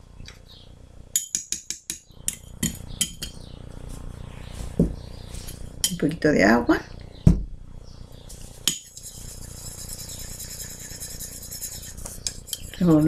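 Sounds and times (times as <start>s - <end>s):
paintbrush stirring paint: 8.6s - 13.0s.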